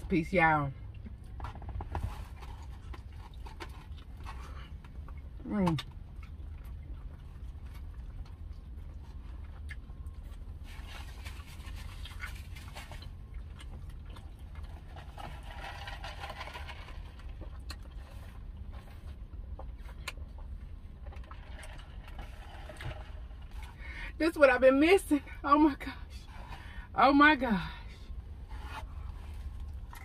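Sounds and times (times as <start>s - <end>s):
low car cabin hum: 0.0s - 30.0s
person chewing and lip-smacking: 2.6s - 10.6s, 11.8s - 15.0s, 17.4s - 21.5s.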